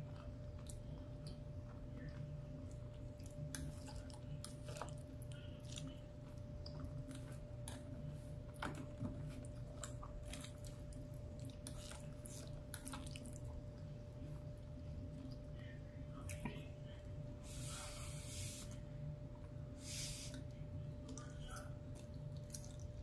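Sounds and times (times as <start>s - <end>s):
person chewing food: 0.0s - 14.0s, 20.3s - 23.0s
faint steady hum: 0.0s - 23.0s.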